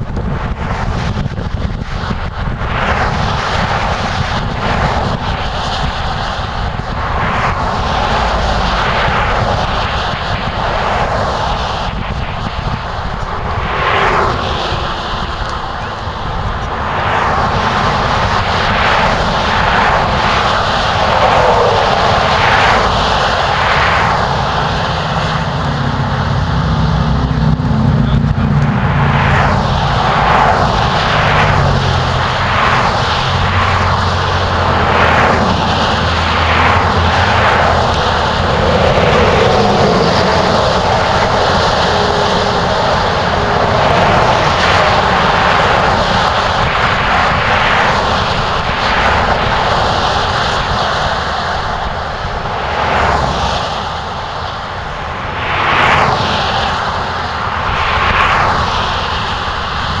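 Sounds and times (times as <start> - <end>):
road traffic roar: 0.0 - 60.0
vehicles swishing past: 13.1 - 50.6.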